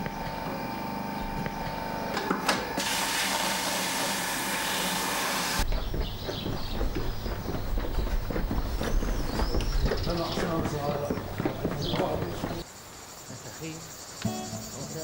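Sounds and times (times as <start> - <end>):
footsteps on paved street: 5.6 - 12.7.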